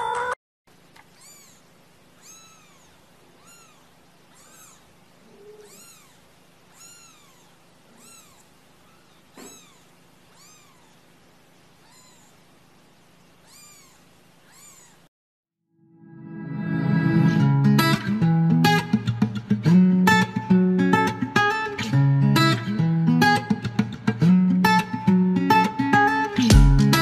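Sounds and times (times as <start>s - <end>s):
kittens mewing: 1.0s - 12.7s, 13.3s - 15.1s.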